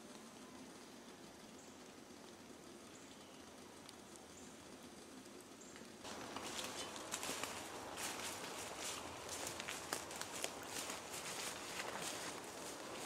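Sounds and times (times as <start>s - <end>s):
footsteps crunching dry leaves: 6.0s - 13.0s.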